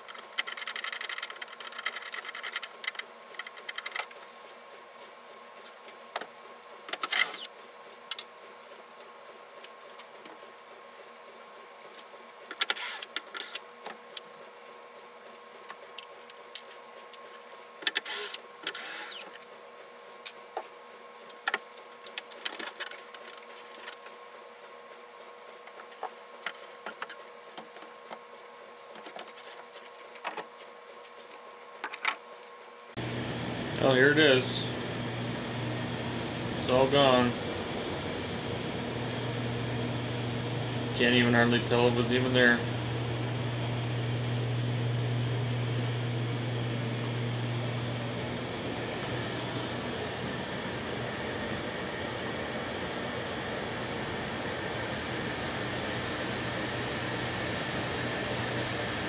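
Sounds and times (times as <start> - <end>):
steady hum: 9.4 - 22.1, 32.3 - 59.0.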